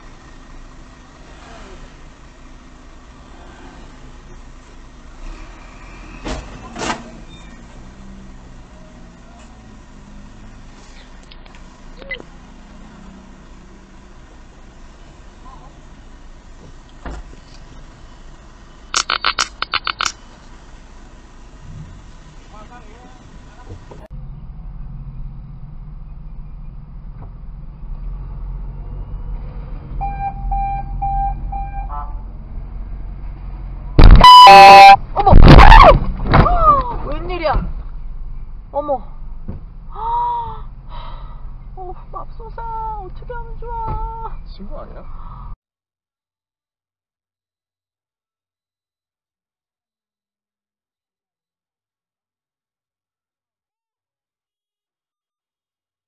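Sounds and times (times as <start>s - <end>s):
car engine idling: 0.0s - 5.2s, 7.7s - 28.0s, 36.6s - 45.6s
electronic beeps: 34.0s - 35.0s
short sharp loud noises: 34.0s - 36.2s.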